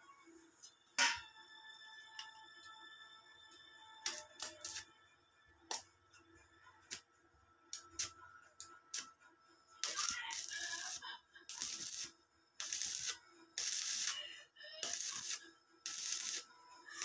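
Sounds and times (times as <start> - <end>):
welding arc crackling: 4.1 - 4.8, 9.8 - 14.2, 14.8 - 16.5.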